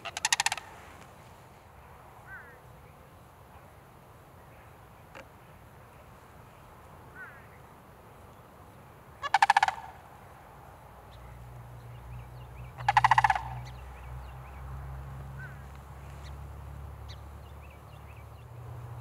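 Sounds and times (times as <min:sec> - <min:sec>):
crane rattle calls: 0:00.0 - 0:00.8, 0:09.2 - 0:10.3, 0:12.1 - 0:14.6
small birds chirping: 0:11.0 - 0:19.0.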